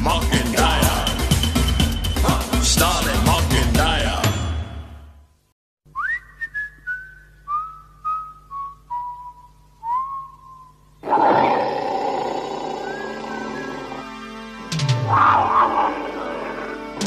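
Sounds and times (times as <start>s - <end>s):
person whistling a slow tune: 5.9s - 10.9s, 12.8s - 14.0s.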